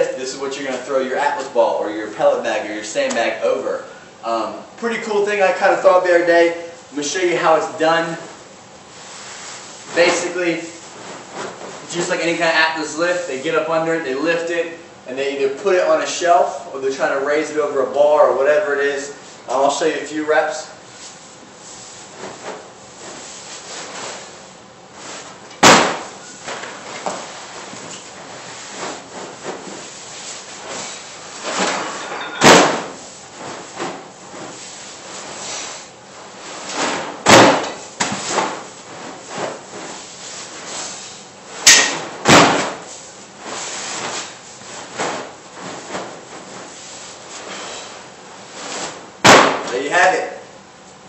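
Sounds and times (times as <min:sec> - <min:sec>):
sandbag slamming onto bar: 0:25.6 - 0:26.2, 0:31.5 - 0:33.0, 0:36.9 - 0:38.6, 0:41.6 - 0:42.8, 0:49.2 - 0:49.8
sandbag thudding on floor: 0:25.6 - 0:27.4, 0:30.8 - 0:34.6, 0:36.8 - 0:40.0, 0:41.6 - 0:42.9, 0:48.7 - 0:49.8.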